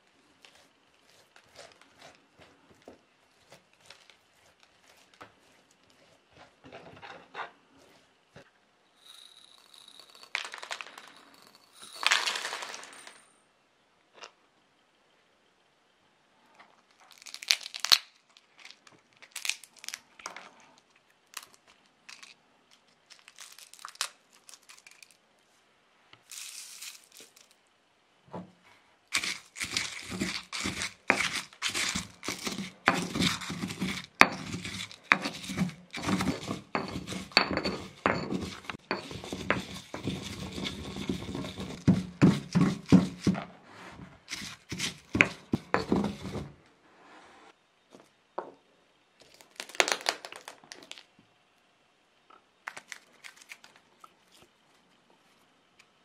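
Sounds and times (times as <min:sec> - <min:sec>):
dried chili crinkling and tearing: 0:00.3 - 0:06.3, 0:16.8 - 0:25.2, 0:29.1 - 0:36.0, 0:49.2 - 0:51.1, 0:52.6 - 0:55.0
pestle pounding in stone mortar: 0:29.2 - 0:43.5, 0:44.3 - 0:46.5.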